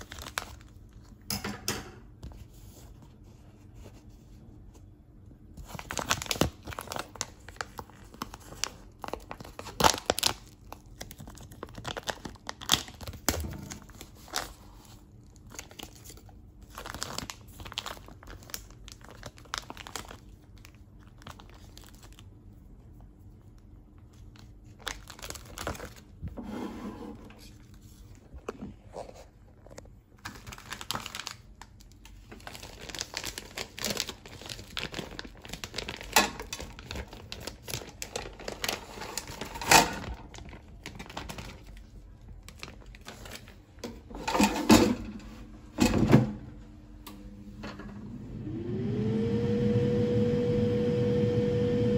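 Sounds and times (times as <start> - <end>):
plastic wrap crinkling and tearing: 0.0 - 1.2, 5.6 - 26.4, 27.4 - 43.8.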